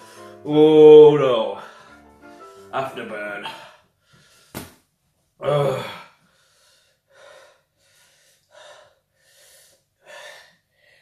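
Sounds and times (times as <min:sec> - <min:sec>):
man gasping and panting: 0:05.4 - 0:11.0.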